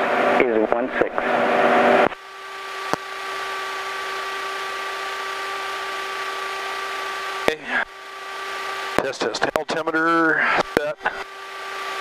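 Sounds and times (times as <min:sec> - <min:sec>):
electrical whine: 0:00.0 - 0:12.0
radio voice: 0:00.4 - 0:01.3, 0:07.5 - 0:07.9, 0:09.0 - 0:11.2.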